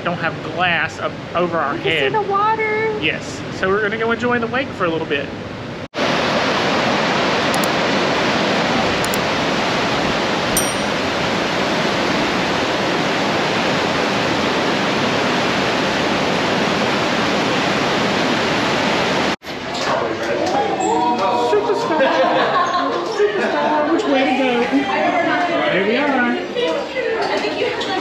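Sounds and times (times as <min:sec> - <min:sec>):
churning white water: 0:11.4 - 0:19.4.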